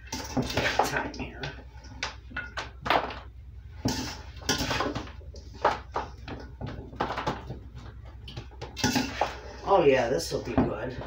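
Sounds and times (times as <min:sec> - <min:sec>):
steady low hum: 0:00.0 - 0:11.0
metal spoon scraping steel bowl: 0:03.9 - 0:05.0.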